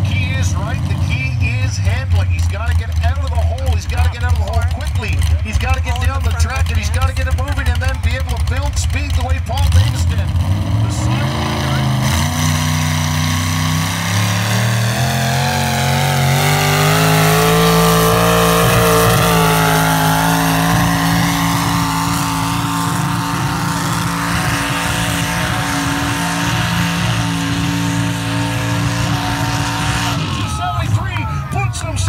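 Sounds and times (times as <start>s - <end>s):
engine revving hard: 9.5s - 32.0s.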